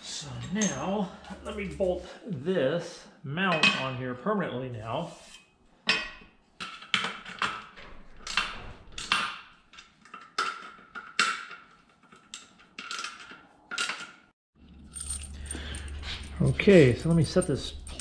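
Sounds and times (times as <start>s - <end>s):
metal clinks and taps: 14.7s - 18.0s.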